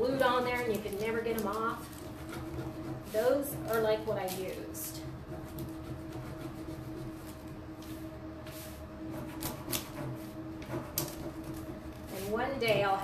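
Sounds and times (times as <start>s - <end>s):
plastic film rustling: 0.0s - 5.0s.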